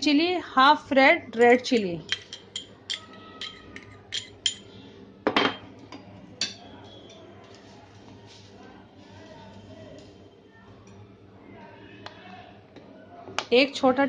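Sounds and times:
spoon clinking on ceramic bowl: 0:01.5 - 0:04.7.

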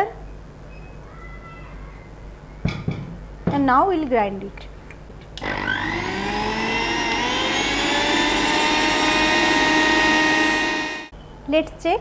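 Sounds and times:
mixer grinder motor whining: 0:05.4 - 0:11.1.

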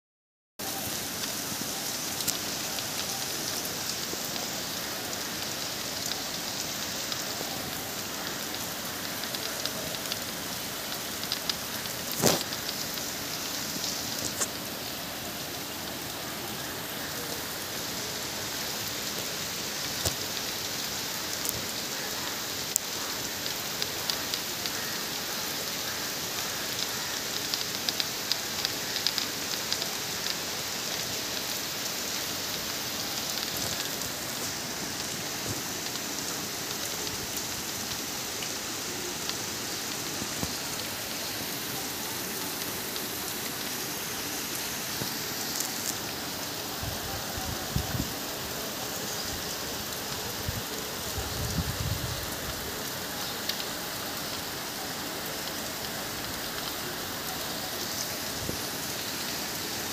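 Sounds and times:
rain falling: 0:00.6 - 0:59.9
raindrop ticks: 0:02.2 - 0:14.6, 0:19.1 - 0:20.5, 0:22.6 - 0:43.8, 0:52.5 - 0:59.6.

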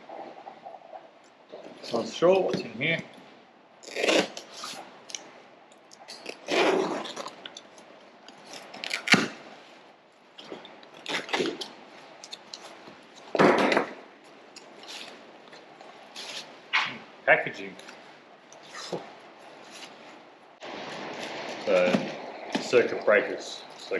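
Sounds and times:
knife slitting packing tape: 0:03.8 - 0:04.8.

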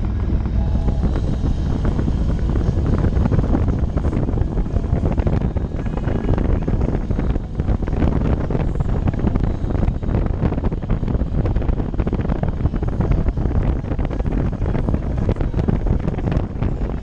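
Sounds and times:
wind buffeting microphone: 0:00.0 - 0:17.0.

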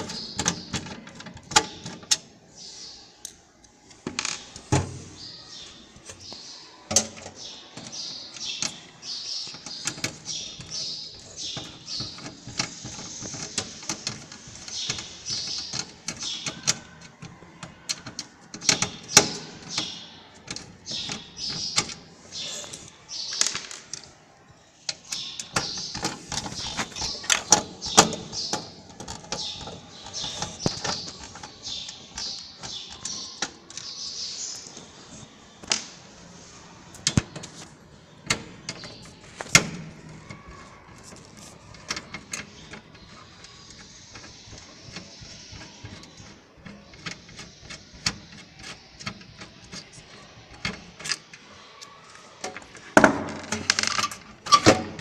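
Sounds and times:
scraping: 0:25.0 - 0:51.3.

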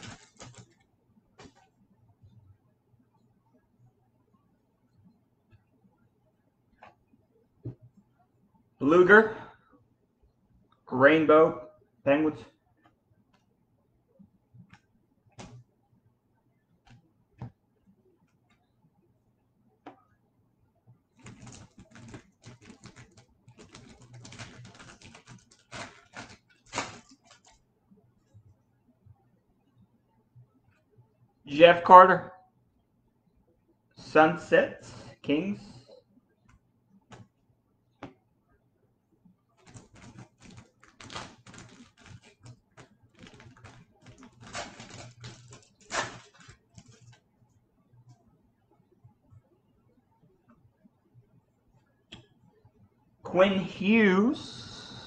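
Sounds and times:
foil wrapper crinkling and tearing: 0:00.0 - 0:00.7, 0:21.2 - 0:27.6, 0:39.6 - 0:47.2.

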